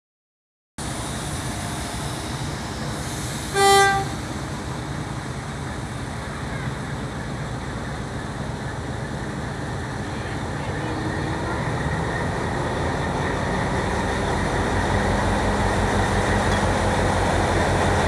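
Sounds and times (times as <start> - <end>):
diesel locomotive engine rumble: 0.8 - 18.0
train horn blast: 3.5 - 4.2.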